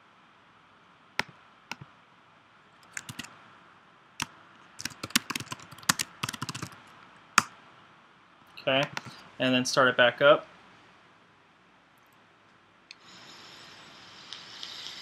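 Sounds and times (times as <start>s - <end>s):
computer keyboard typing: 2.8s - 3.3s, 4.2s - 6.8s.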